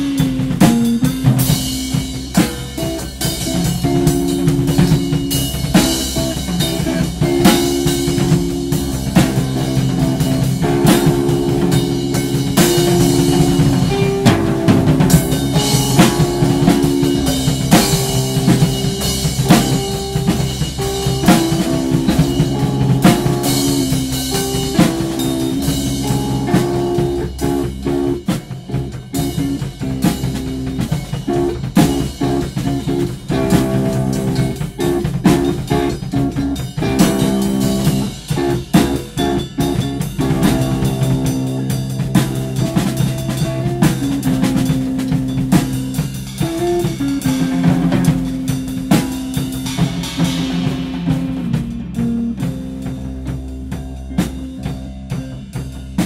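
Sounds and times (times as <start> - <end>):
drum kit playing busy beats: 0.0 - 56.0
held guitar notes: 0.0 - 56.0.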